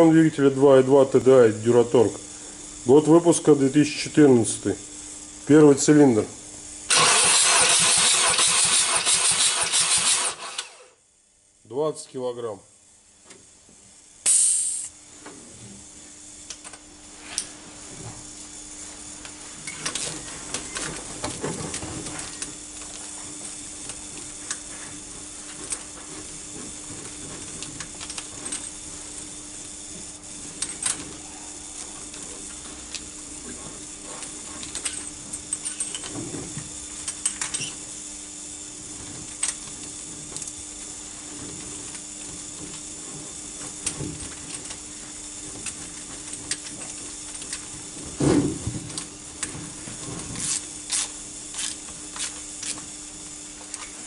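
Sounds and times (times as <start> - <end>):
steady low hum: 0.0 - 54.0
loud hiss of air: 14.2 - 14.9.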